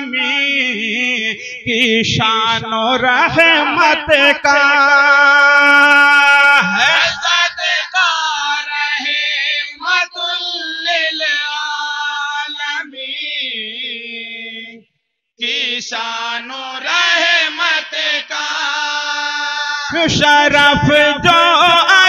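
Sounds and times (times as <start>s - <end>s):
men chanting together: 5.5s - 14.7s, 15.4s - 22.0s.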